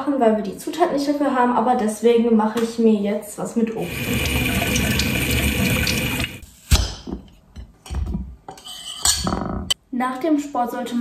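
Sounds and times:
tap water running: 3.8 - 6.4.

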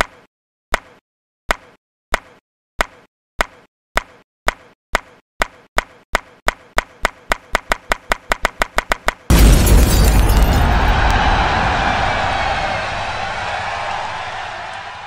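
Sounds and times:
loud rush of noise: 9.3 - 15.0.

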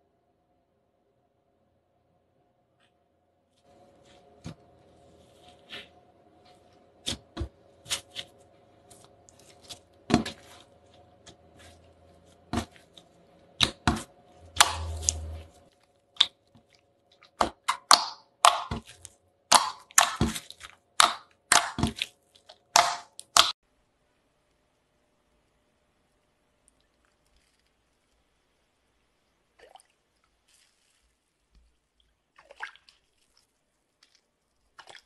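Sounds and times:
slime squelch: 3.6 - 23.6, 26.6 - 35.0
slime clicking and popping: 17.4 - 18.9, 19.5 - 22.1, 22.7 - 23.6
faint steady hum: 23.2 - 35.0.

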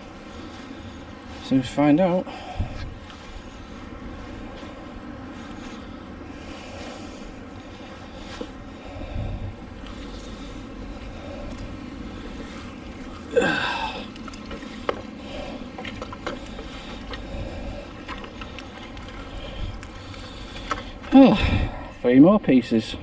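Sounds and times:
wind rumble on microphone: 0.0 - 22.1.

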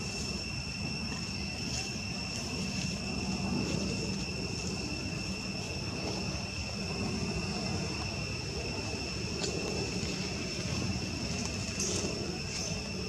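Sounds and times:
high insect drone: 0.0 - 13.0.

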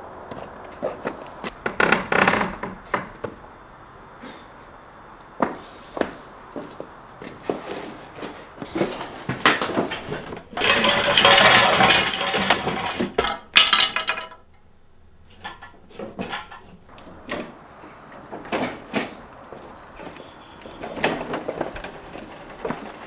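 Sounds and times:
hard objects clattering: 8.8 - 17.6
rattling and scraping: 8.8 - 17.6.

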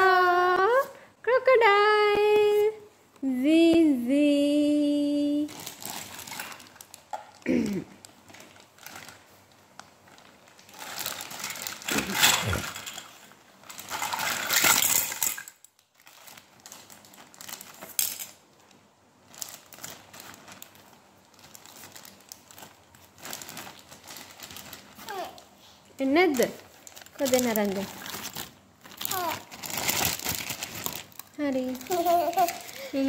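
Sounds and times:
plastic toy pieces clattering: 10.7 - 15.7, 17.6 - 18.4.

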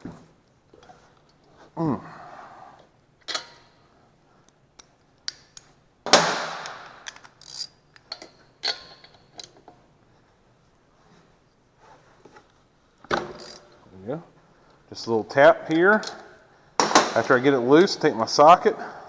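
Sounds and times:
ratchet clicks: 13.4 - 13.6.

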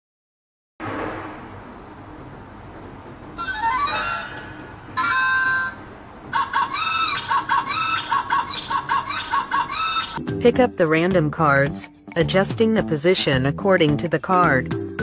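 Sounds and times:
chirpy electronic jingle: 3.4 - 4.4, 5.0 - 10.2
electronic held tone: 3.4 - 6.0.

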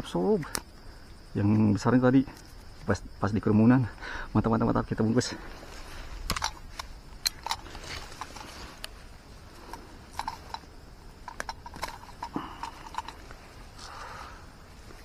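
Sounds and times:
leaves and twigs rustling and snapping: 0.0 - 3.0, 4.9 - 15.0.

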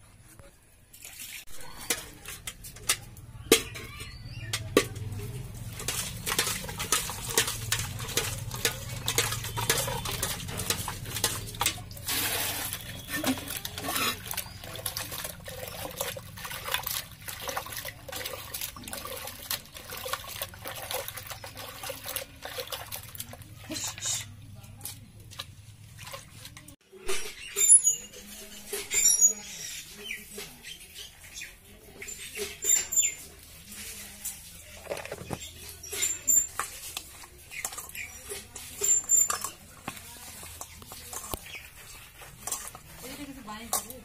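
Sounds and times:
water splashing and sloshing: 0.7 - 27.3, 28.2 - 44.0
knocks against metal bucket: 1.8 - 12.0.

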